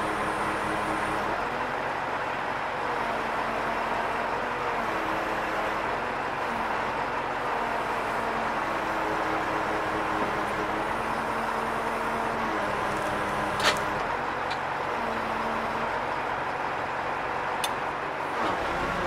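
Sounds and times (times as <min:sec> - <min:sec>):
truck engine driving hydraulics: 0:07.8 - 0:19.0.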